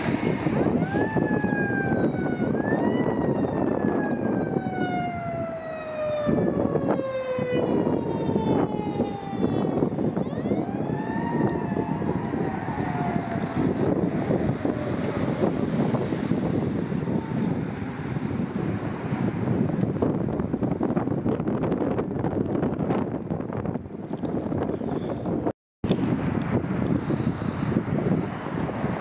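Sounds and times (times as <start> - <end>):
siren wailing: 0.0 - 19.8
traffic: 0.0 - 29.0
wind noise: 0.0 - 29.0.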